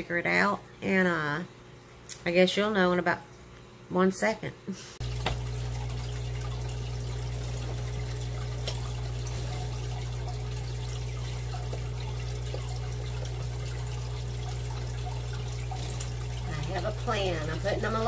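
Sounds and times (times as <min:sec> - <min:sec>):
aquarium pump hum: 0:00.0 - 0:18.0
trickle of water: 0:05.0 - 0:18.0.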